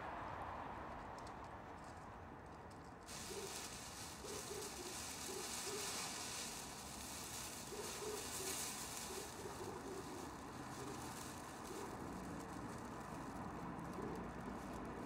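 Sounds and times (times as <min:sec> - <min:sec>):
foil blanket crinkling: 0:03.1 - 0:15.0.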